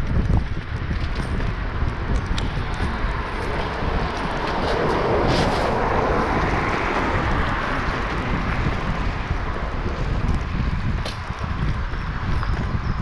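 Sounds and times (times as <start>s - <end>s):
wind buffeting microphone: 0.0s - 13.0s
car tyres hissing on wet road: 2.4s - 10.8s.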